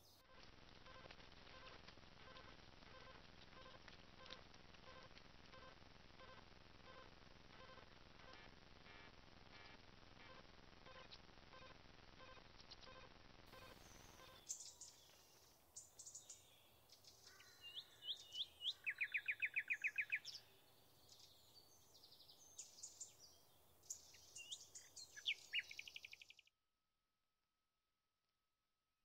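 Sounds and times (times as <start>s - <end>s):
small birds singing and chirping: 12.6s - 26.4s.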